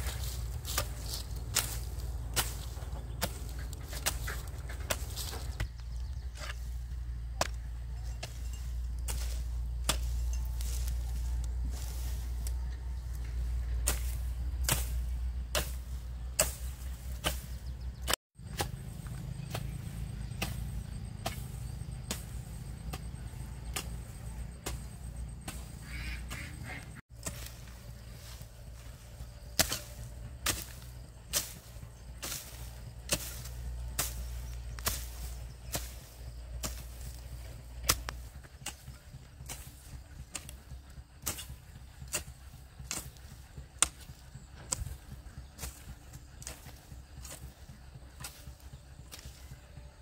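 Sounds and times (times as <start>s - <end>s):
low rumble: 0.0s - 17.9s
steady low rumble: 0.0s - 50.0s.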